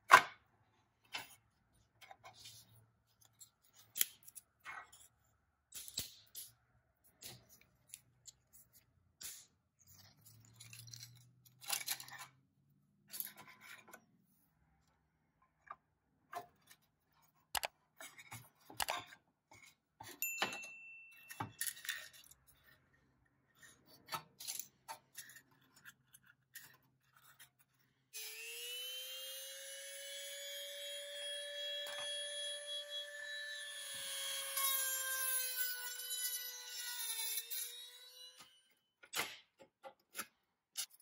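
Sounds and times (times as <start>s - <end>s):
rotary tool whine: 28.2s - 38.6s.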